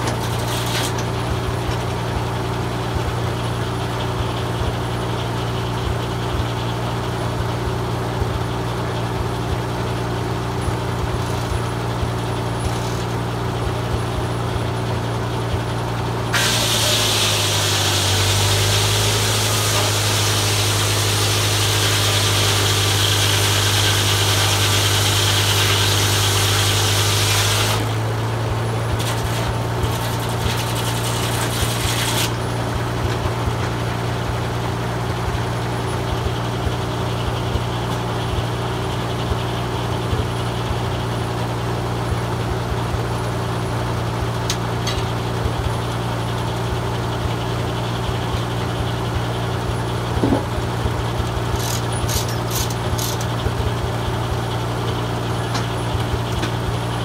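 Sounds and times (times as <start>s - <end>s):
saw blade cutting a log: 0.0s - 1.8s, 12.6s - 13.3s, 16.3s - 33.7s, 51.4s - 53.7s
tractor engine running: 0.0s - 57.0s.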